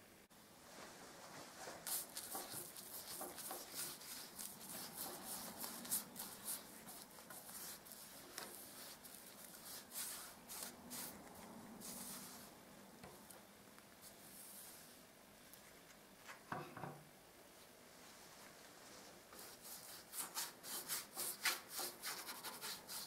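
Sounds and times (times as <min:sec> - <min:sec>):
paintbrush swishing on wood: 0:00.7 - 0:13.3.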